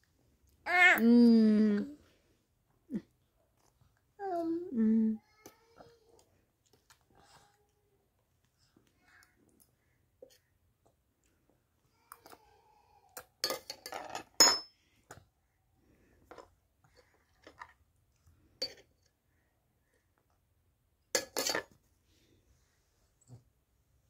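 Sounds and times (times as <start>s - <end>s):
metal spoon clinking in steel bowl: 13.4s - 14.7s, 21.2s - 21.6s.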